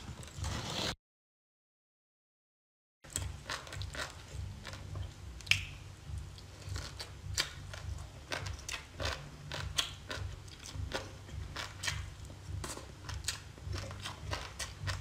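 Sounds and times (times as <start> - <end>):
low steady hum: 3.1 - 15.0
wet chewing: 3.1 - 15.0.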